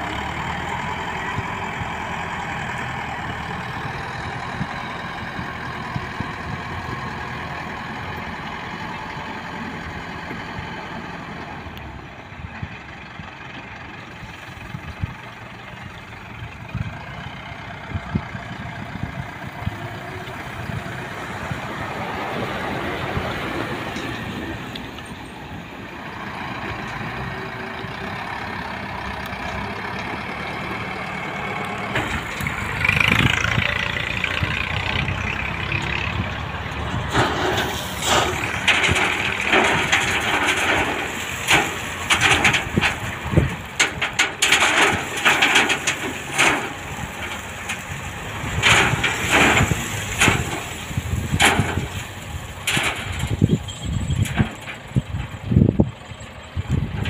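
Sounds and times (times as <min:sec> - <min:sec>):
diesel truck engine running: 0:00.0 - 0:57.0
gravel clattering and crunching: 0:29.0 - 0:57.0.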